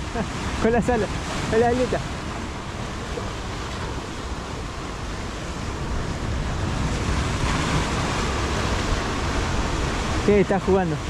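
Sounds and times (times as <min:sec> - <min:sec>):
sea surf washing: 0:00.0 - 0:11.0
wind rumbling on microphone: 0:00.0 - 0:11.0.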